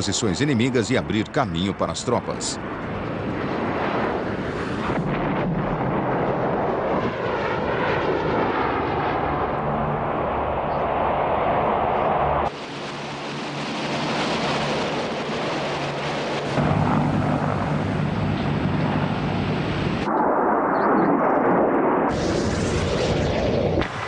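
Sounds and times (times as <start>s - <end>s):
hovercraft engine noise: 0.0s - 24.0s
jet aircraft noise: 0.0s - 24.0s
deep rumble: 13.1s - 24.0s.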